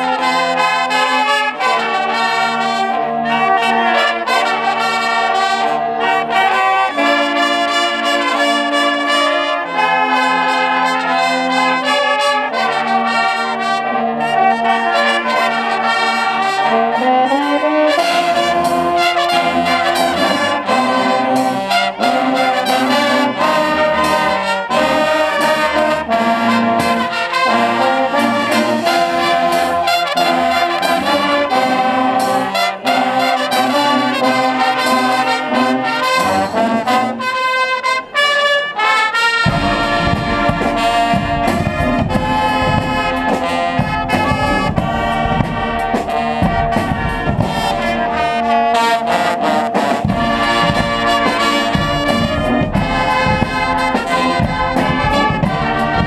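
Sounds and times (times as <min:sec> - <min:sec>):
snare drums: 0:00.0 - 0:38.1, 0:38.8 - 0:56.0
brass band playing: 0:00.0 - 0:56.0
cymbals: 0:00.0 - 0:56.0
bass drum: 0:39.4 - 0:48.3, 0:49.9 - 0:56.0.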